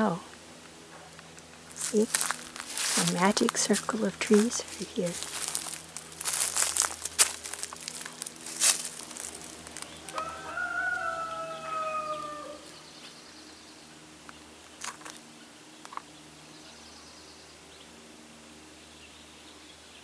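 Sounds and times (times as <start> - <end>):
footsteps on dry leaves: 0.9 - 13.2, 14.7 - 15.3
rooster crowing: 10.0 - 12.8.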